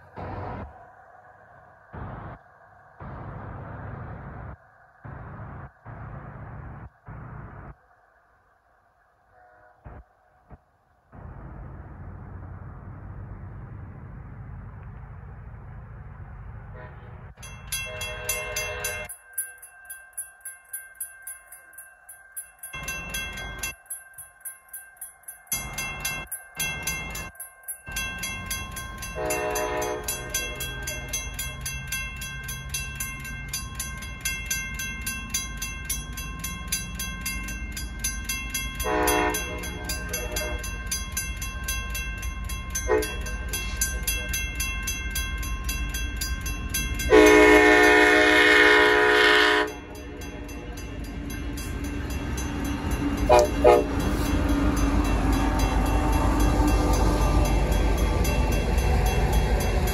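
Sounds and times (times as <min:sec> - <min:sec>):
train rumble: 0:00.0 - 0:07.9, 0:09.3 - 0:59.9
locomotive horn blasts: 0:16.8 - 0:19.1, 0:29.2 - 0:31.2, 0:38.8 - 0:40.7, 0:42.9 - 0:43.3, 0:47.1 - 0:50.3, 0:53.2 - 0:54.1
railroad crossing bells ringing: 0:17.3 - 0:59.9.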